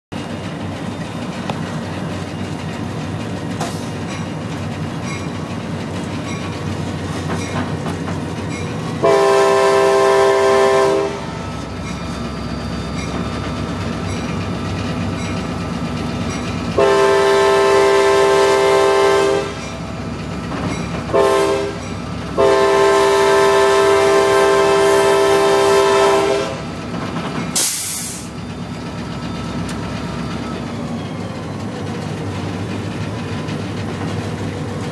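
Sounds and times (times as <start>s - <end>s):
locomotive air horn blasts: 9.0s - 11.5s, 16.8s - 19.7s, 21.1s - 26.7s
short air hiss: 27.6s - 28.3s.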